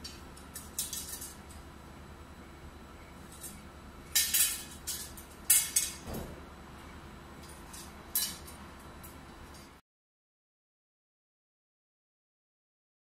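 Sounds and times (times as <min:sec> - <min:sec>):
metal brackets clinking and rattling: 0:00.0 - 0:01.5, 0:03.3 - 0:06.2, 0:07.4 - 0:08.6.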